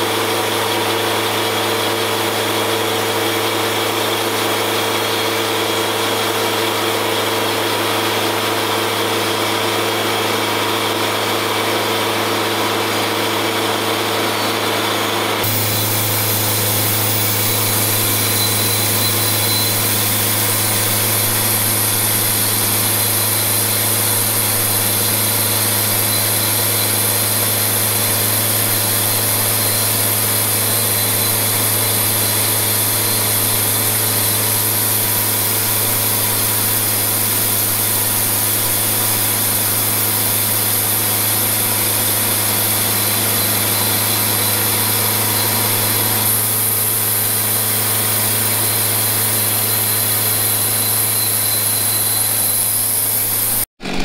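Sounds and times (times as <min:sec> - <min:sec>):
sawmill engine hum: 0:00.0 - 0:54.0
bandsaw blade hissing through wood: 0:15.4 - 0:54.0.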